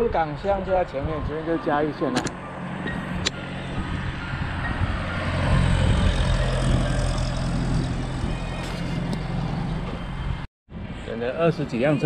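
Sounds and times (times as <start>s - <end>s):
traffic driving past: 0.3s - 12.0s.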